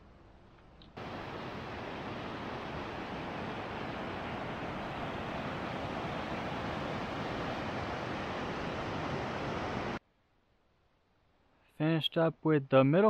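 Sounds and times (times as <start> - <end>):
rushing river water: 1.0 - 10.0.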